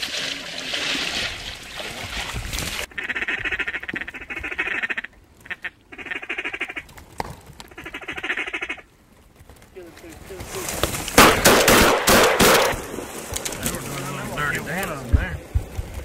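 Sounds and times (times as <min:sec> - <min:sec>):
water sloshing: 0:00.0 - 0:02.9
ducks quacking: 0:02.8 - 0:06.9, 0:07.7 - 0:08.9.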